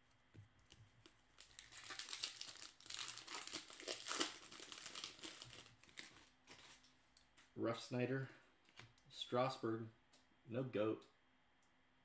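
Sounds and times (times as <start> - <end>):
wrapper tearing and crinkling: 1.4 - 6.8.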